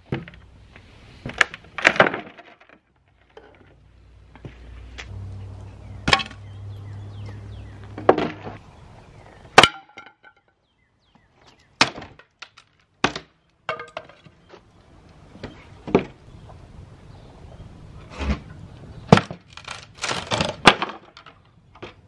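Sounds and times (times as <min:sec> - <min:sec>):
wood pieces clattering on brick: 0:01.3 - 0:03.8, 0:11.8 - 0:14.4, 0:19.1 - 0:22.0.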